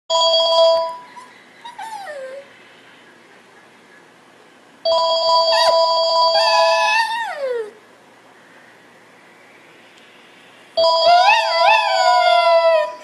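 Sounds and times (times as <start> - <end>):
cordless phone ringing: 0.1 - 1.1, 4.9 - 6.8, 10.8 - 11.8
dog crying: 1.1 - 2.5, 5.4 - 7.8, 10.8 - 13.0.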